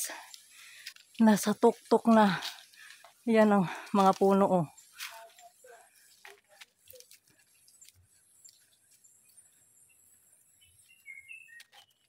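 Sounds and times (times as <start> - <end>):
footsteps on a trail: 0.0 - 9.8.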